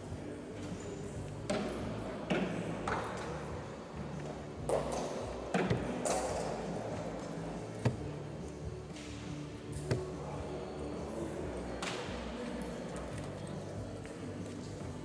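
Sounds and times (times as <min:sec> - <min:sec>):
murmur of a busy hall: 0:00.0 - 0:15.0
darts striking dartboards: 0:04.7 - 0:06.4.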